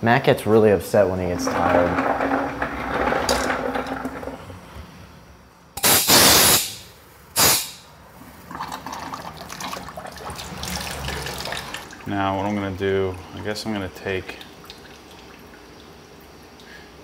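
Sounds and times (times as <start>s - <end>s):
pressure washer water bursts: 5.8s - 7.8s.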